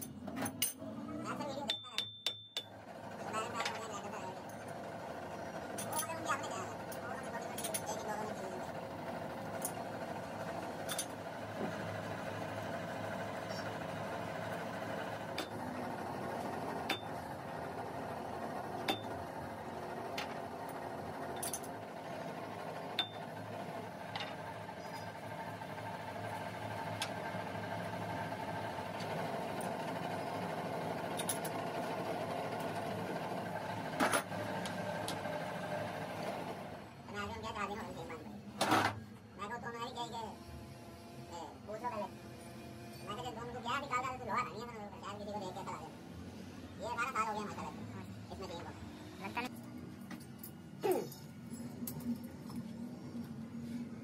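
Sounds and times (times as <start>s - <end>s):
steady mechanical hum: 0.0s - 54.0s.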